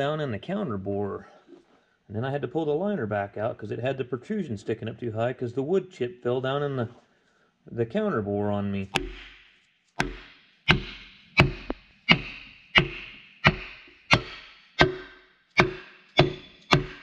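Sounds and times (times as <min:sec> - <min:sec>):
hammer striking wooden block: 0:09.0 - 0:17.0.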